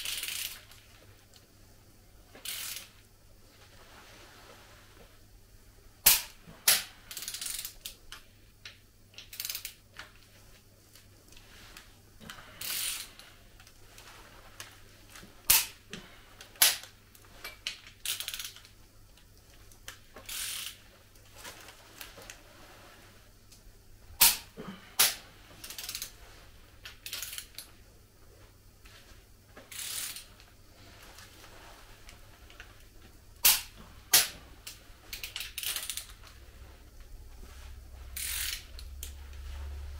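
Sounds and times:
torque wrench clicks: 0:00.0 - 0:00.6, 0:02.4 - 0:02.9, 0:06.1 - 0:08.0, 0:09.2 - 0:09.8, 0:12.6 - 0:13.2, 0:17.7 - 0:18.7, 0:20.3 - 0:20.8, 0:25.0 - 0:26.1, 0:27.0 - 0:27.7, 0:29.7 - 0:30.3, 0:35.1 - 0:36.2, 0:38.2 - 0:39.2
wrench ratcheting: 0:00.0 - 0:00.6, 0:02.4 - 0:02.9, 0:06.1 - 0:08.0, 0:09.2 - 0:09.8, 0:12.6 - 0:13.2, 0:17.8 - 0:18.7, 0:20.3 - 0:20.8, 0:25.0 - 0:26.1, 0:27.0 - 0:27.6, 0:29.7 - 0:30.3, 0:35.1 - 0:36.2, 0:38.2 - 0:39.1.

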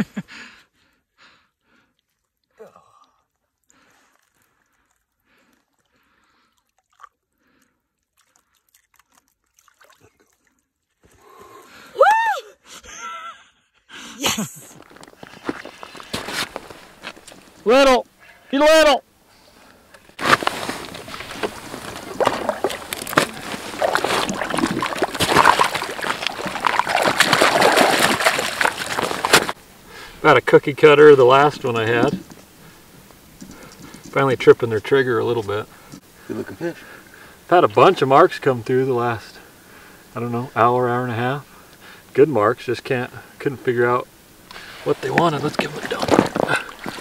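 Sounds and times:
water sloshing and dripping: 0:03.3 - 0:11.2, 0:20.2 - 0:29.6, 0:44.5 - 0:47.0
small ticks: 0:33.1 - 0:34.2.

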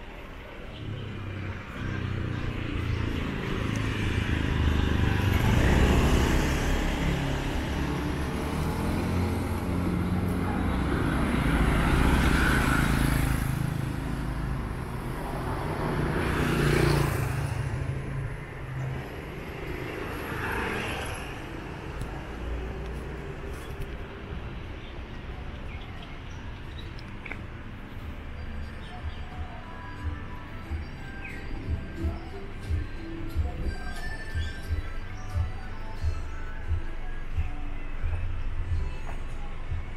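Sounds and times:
motor scooters passing: 0:00.6 - 0:24.7.

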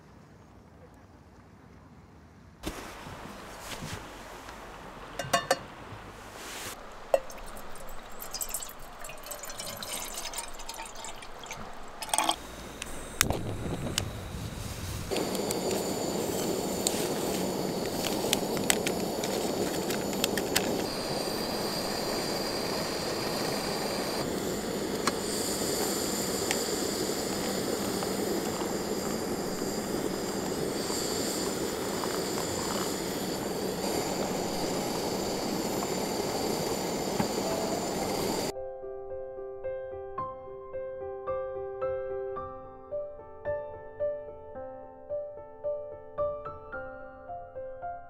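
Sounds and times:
fire crackling: 0:02.6 - 0:38.5
fire flames rushing: 0:12.7 - 0:38.5.

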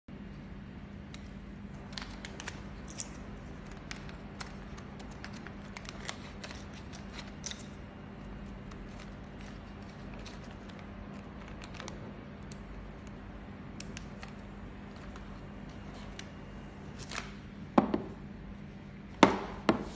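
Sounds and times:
plastic bag crinkling and clicking: 0:01.2 - 0:13.2.

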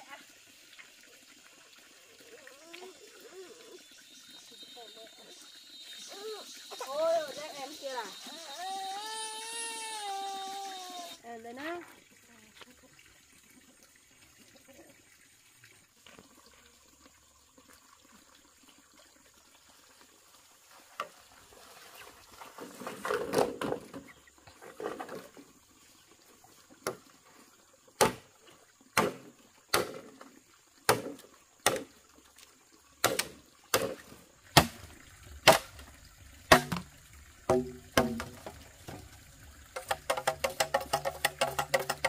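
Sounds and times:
water splashing and pouring: 0:00.0 - 0:42.0
sharp knocks: 0:36.5 - 0:36.9, 0:37.5 - 0:38.5.

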